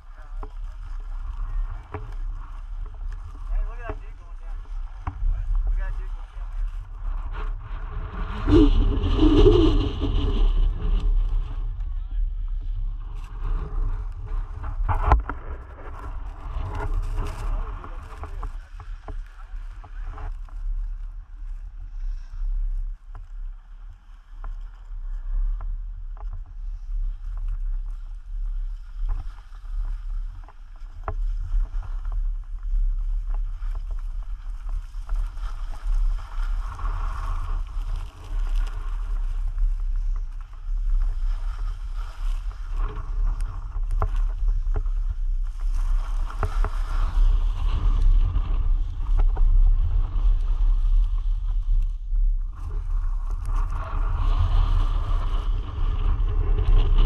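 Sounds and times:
wind rumbling on microphone: 0.0s - 57.0s
rushing scraping hiss: 26.7s - 51.5s.

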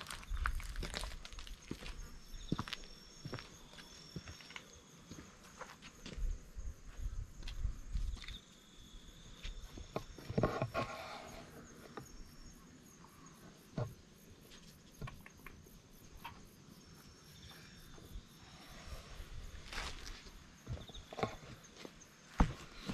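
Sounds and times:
high-pitched insect trill: 0.0s - 22.2s.

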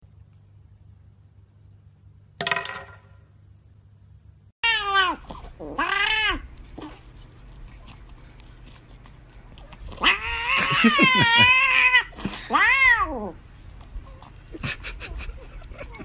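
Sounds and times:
cat meowing: 4.6s - 6.5s, 10.0s - 13.4s.

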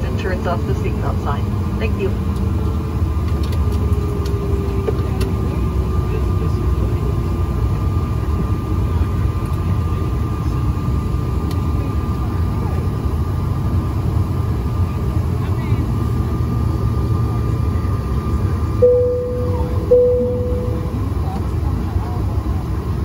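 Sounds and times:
jet engine rumble: 0.0s - 23.0s
thin constant whine: 18.8s - 21.4s.

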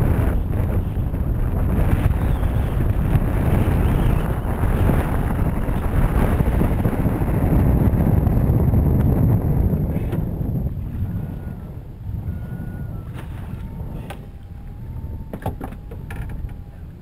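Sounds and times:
wind buffeting microphone: 0.0s - 17.0s
water splashing at hull: 13.1s - 16.7s.

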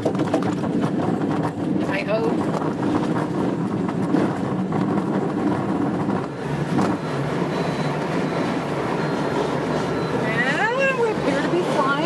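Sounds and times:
sharp knocks from bumps: 0.0s - 7.0s
glider rumbling and rattling on grass: 0.0s - 7.4s.

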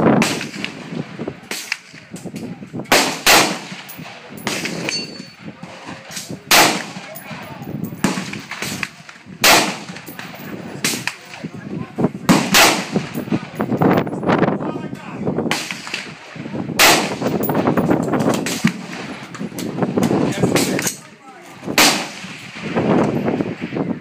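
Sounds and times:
rifle gunshots with ringing tail: 0.2s - 2.0s, 2.9s - 11.4s, 12.2s - 13.8s, 15.5s - 19.3s, 21.8s - 22.8s.

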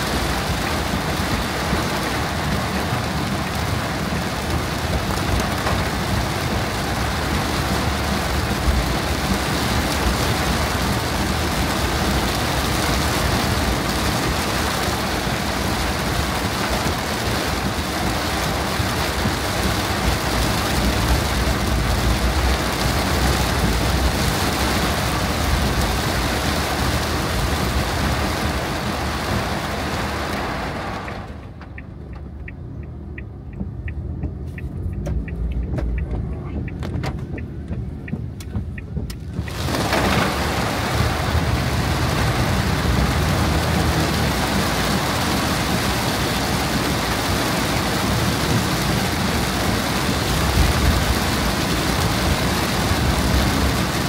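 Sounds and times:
heavy rain on car roof: 0.0s - 54.0s
car engine running: 30.7s - 54.0s.

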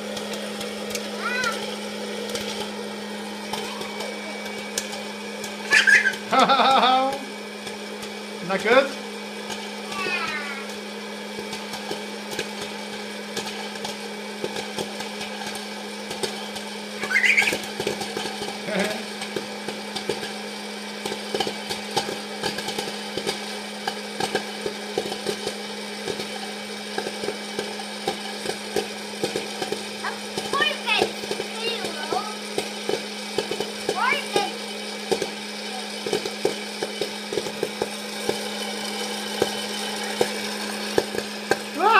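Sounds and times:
popcorn popper motor hum: 0.0s - 41.9s
kernels popping: 0.1s - 8.2s, 9.4s - 20.4s
popcorn clicking into wok: 3.4s - 41.9s.

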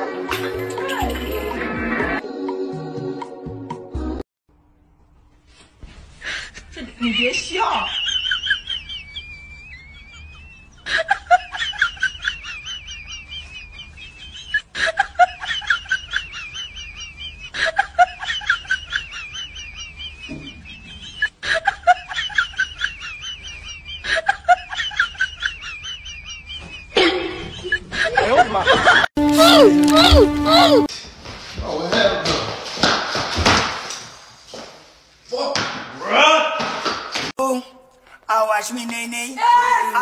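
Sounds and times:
high-pitched cackling: 29.2s - 30.9s.

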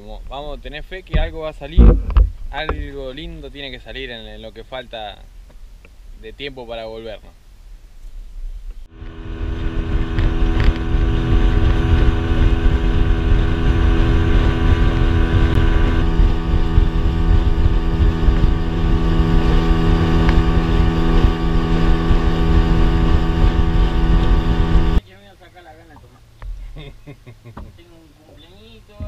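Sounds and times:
low rumble: 0.0s - 6.3s, 7.2s - 25.0s
motorboat engine running: 1.0s - 3.3s, 8.8s - 25.0s.

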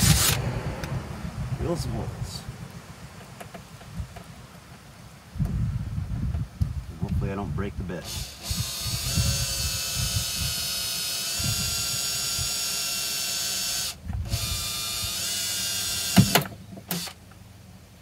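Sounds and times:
cordless drill whining: 0.0s - 0.4s, 8.0s - 17.2s.

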